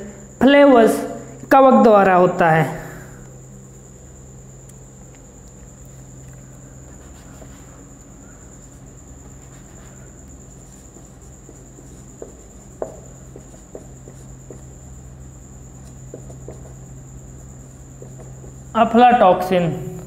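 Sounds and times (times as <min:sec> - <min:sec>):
marker tapping on whiteboard: 0:10.9 - 0:14.7, 0:15.8 - 0:16.8, 0:17.7 - 0:18.7.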